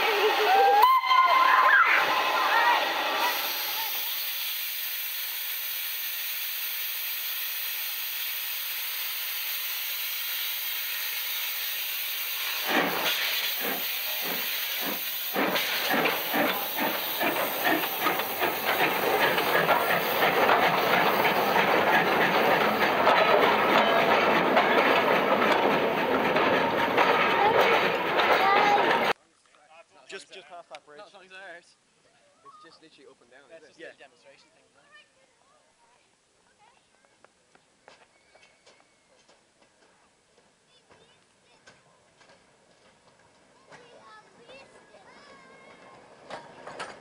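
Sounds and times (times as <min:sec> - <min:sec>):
steam locomotive hissing: 0:00.0 - 0:29.2
steam locomotive exhaust chuffs: 0:02.8 - 0:29.2.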